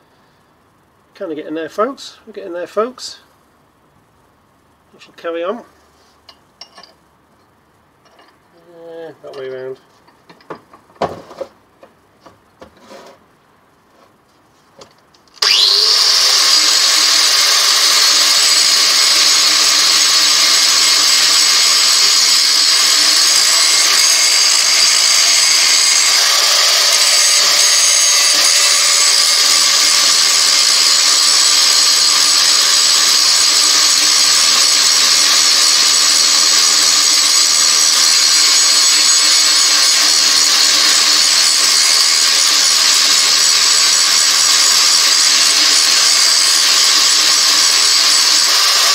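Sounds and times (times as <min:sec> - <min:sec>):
angle grinder grinding steel: 0:15.4 - 0:48.9.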